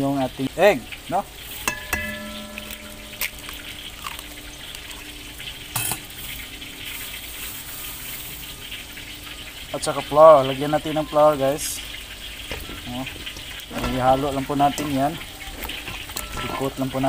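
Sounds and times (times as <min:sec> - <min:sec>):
metal bowl ringing: 0:01.5 - 0:06.3, 0:14.7 - 0:17.0
egg tapped on metal bowl rim: 0:01.7 - 0:04.2.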